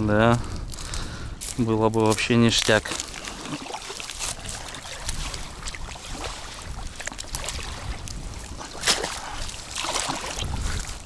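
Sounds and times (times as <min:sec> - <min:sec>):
wind buffeting the microphone: 0:00.0 - 0:11.0
shallow water lapping: 0:02.5 - 0:11.0
small splashes in water: 0:02.9 - 0:11.0.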